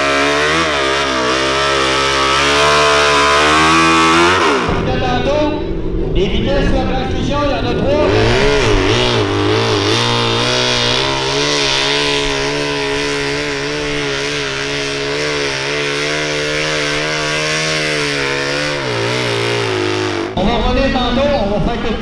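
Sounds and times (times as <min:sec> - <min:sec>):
tractor engine running at high revs: 0:00.0 - 0:06.2, 0:07.3 - 0:20.8.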